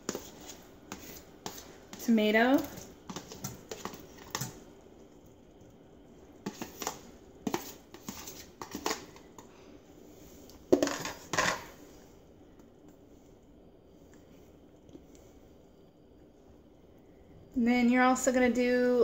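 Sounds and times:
spatula scraping in a pan: 0:00.0 - 0:02.1, 0:06.4 - 0:09.2.

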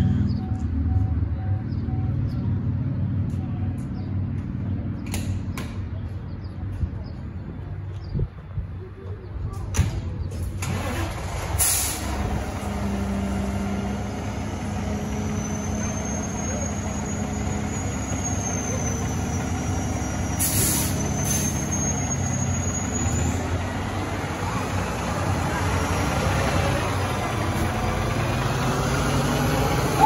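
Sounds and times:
diesel engine idling: 0:10.7 - 0:30.0
air brake hisses: 0:11.6 - 0:12.1, 0:20.4 - 0:21.7.

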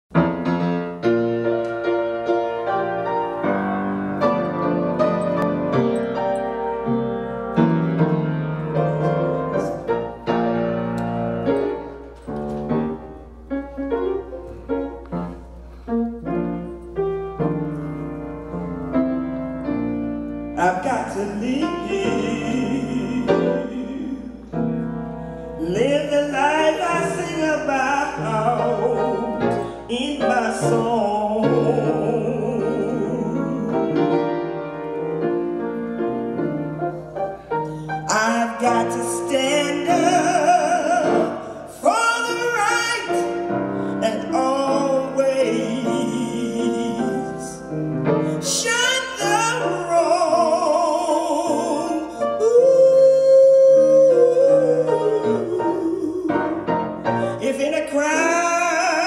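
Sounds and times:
slow gospel piano: 0:00.1 - 0:59.0
woman singing: 0:20.6 - 0:24.6, 0:25.6 - 0:34.3, 0:38.1 - 0:47.8, 0:48.4 - 0:59.0.

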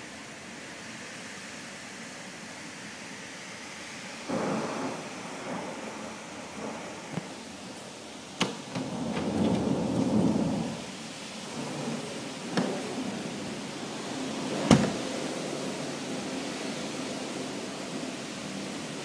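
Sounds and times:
heavy rain: 0:00.0 - 0:19.0
wind: 0:00.0 - 0:19.0
deep thunder rumbling: 0:04.3 - 0:16.2.

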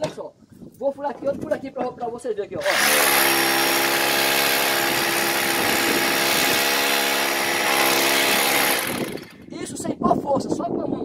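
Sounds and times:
electric drill motor whine: 0:02.6 - 0:09.4
drill bit grinding concrete: 0:02.6 - 0:09.5.

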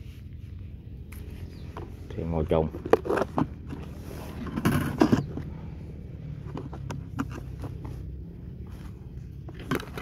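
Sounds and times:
rustling scrape: 0:02.7 - 0:05.6.

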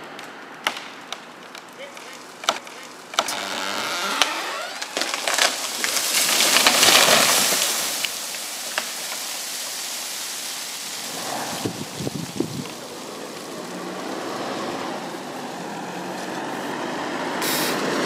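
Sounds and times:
wood snapping: 0:00.0 - 0:14.1
branches crashing: 0:00.0 - 0:16.6
twigs and leaves pattering down: 0:00.1 - 0:16.5.

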